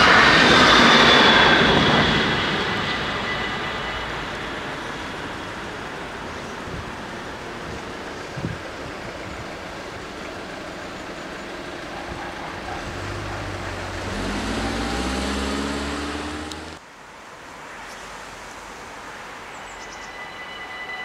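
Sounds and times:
road noise: 0.0s - 19.8s
traffic noise: 0.0s - 20.3s
car accelerating past: 12.8s - 16.8s.

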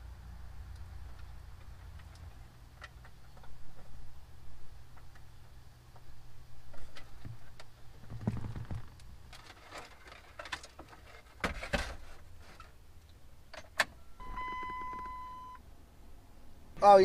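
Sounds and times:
electronic beep: 14.0s - 15.6s.

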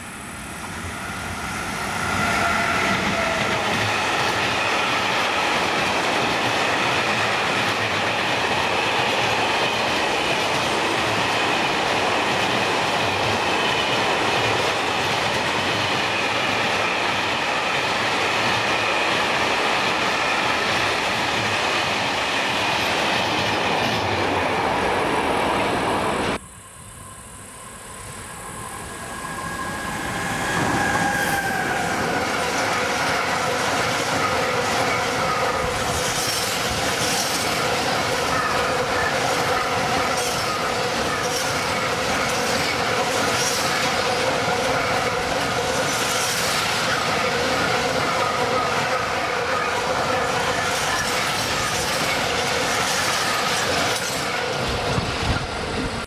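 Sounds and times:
approaching train rumble: 0.0s - 56.0s
train wheels rumbling on rail: 0.0s - 56.0s
high wheel squeal: 1.0s - 5.2s, 27.8s - 54.4s.

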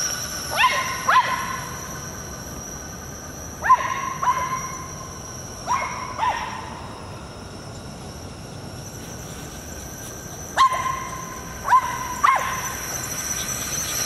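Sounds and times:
dog yipping barks: 3.6s - 4.7s, 5.7s - 6.7s, 10.6s - 12.7s.

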